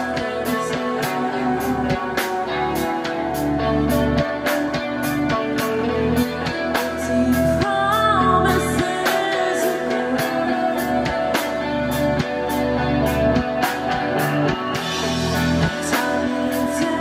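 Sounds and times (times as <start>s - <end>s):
live rock band playing: 0.0s - 17.0s
person singing: 0.0s - 17.0s.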